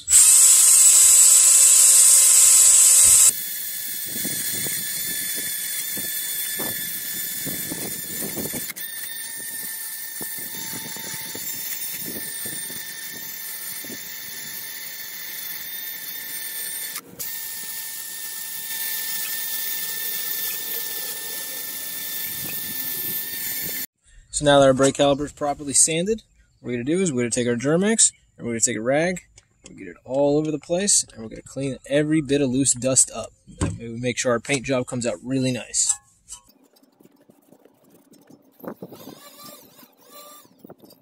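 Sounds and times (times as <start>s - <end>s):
cordless drill whining: 0.0s - 23.9s, 38.6s - 41.0s
wire brush scraping rust: 35.3s - 41.0s.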